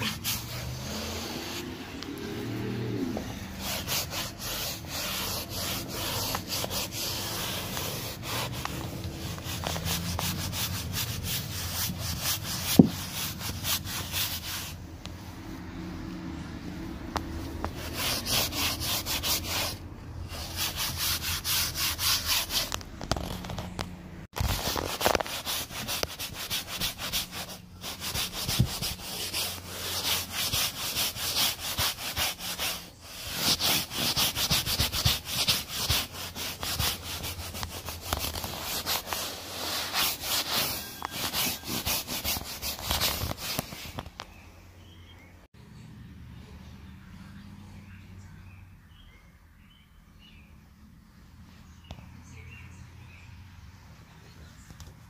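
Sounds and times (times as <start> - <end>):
brush scrubbing fabric cushion: 0.0 - 14.8, 17.4 - 23.4, 24.4 - 44.0.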